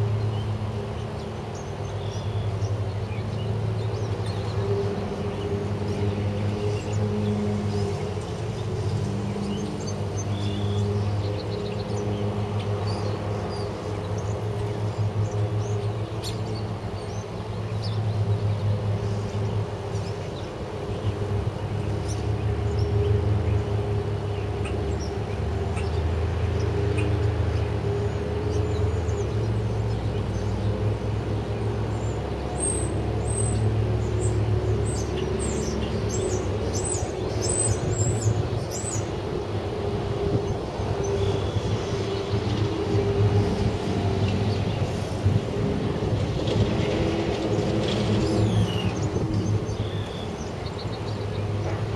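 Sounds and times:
birds chirping: 0.0 - 51.9
wind buffeting microphone: 19.4 - 51.9.

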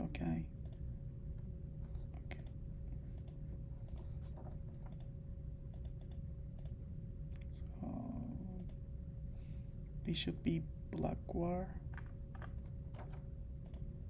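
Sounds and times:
faint hum: 0.0 - 14.0
computer mouse clicks: 0.6 - 0.9, 2.3 - 5.1, 5.7 - 6.8, 11.9 - 13.9.

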